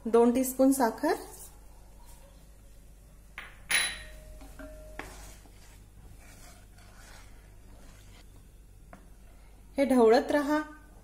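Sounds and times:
spatula scraping pan: 0:04.6 - 0:08.3
liquid swishing: 0:05.1 - 0:08.2.

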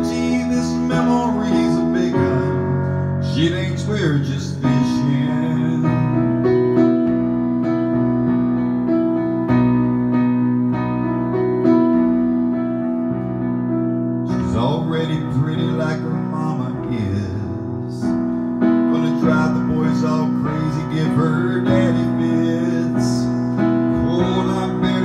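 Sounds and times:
electronic keyboard chords: 0:00.0 - 0:25.0
man's soft voice: 0:14.3 - 0:18.2, 0:18.9 - 0:25.0.

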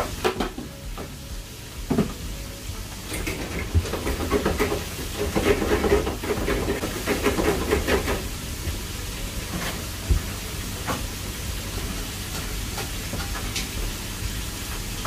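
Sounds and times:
low extraction hum: 0:00.0 - 0:03.4
frying hiss: 0:00.0 - 0:15.0.

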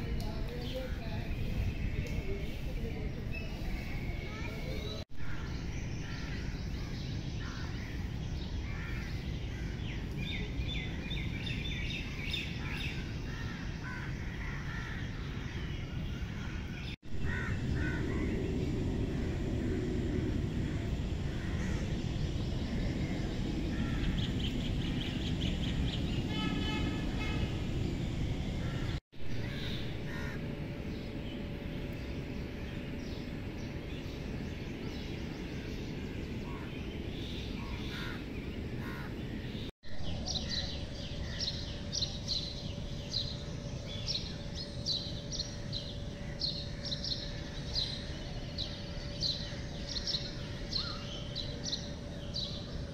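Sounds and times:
birds chirping: 0:00.0 - 0:52.9
steady background rumble: 0:00.0 - 0:52.9
crows cawing: 0:17.2 - 0:18.4, 0:28.7 - 0:30.4, 0:37.9 - 0:38.2, 0:38.8 - 0:39.2.

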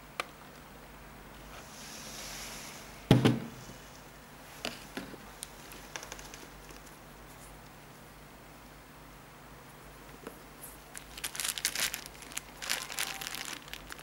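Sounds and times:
plastic bag crinkling: 0:05.6 - 0:06.9, 0:10.9 - 0:14.0.

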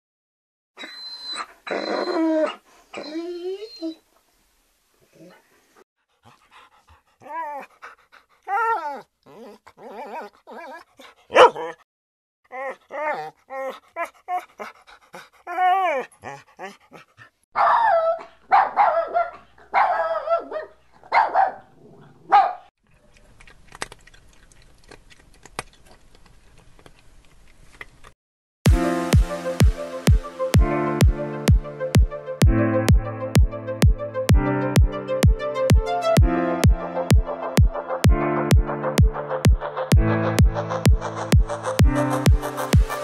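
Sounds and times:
puppy whimpering and yipping: 0:00.8 - 0:04.0, 0:08.5 - 0:11.8, 0:12.5 - 0:14.5, 0:15.5 - 0:16.4
puppy harsh yaps: 0:11.3 - 0:11.8, 0:17.6 - 0:21.6, 0:22.3 - 0:22.7.

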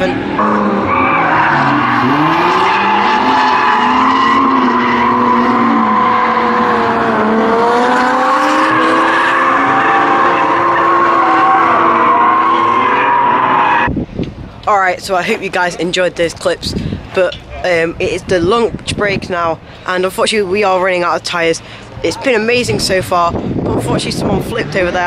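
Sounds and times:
car engines revving high: 0:00.0 - 0:14.0.

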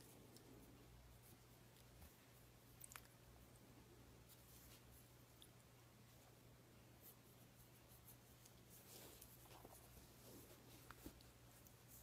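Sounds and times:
hand rubbing dog fur: 0:04.2 - 0:05.3, 0:07.0 - 0:12.0.

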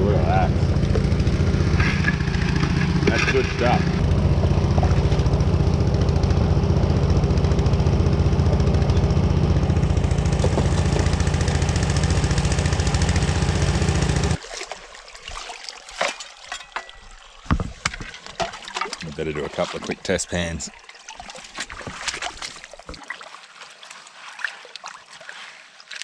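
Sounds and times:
small engine running: 0:00.0 - 0:14.4.

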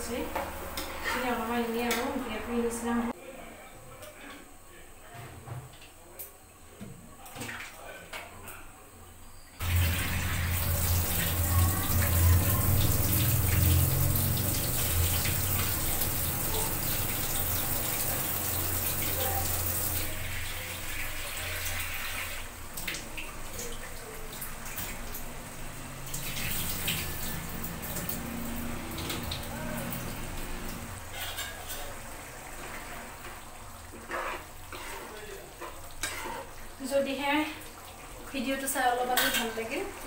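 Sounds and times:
water running into steel sink: 0:09.6 - 0:40.0.

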